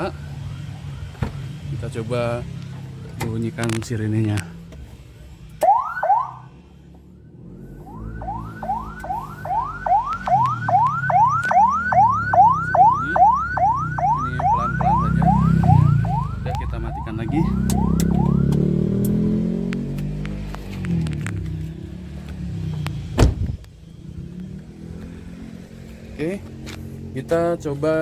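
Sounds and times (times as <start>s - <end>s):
ambulance siren yelping: 5.6s - 19.0s.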